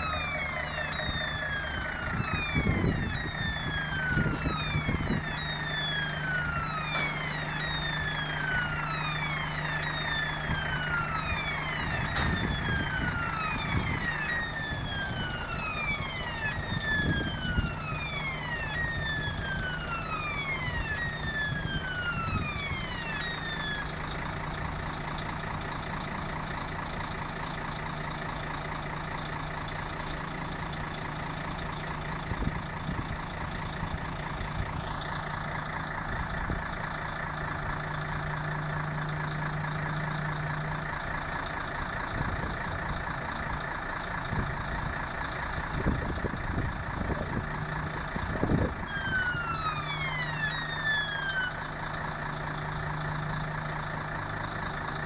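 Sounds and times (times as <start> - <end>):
falling warning tone: 0.0 - 24.2, 45.4 - 53.8
crane machine hum: 0.0 - 55.0
machine clunks: 11.8 - 12.5.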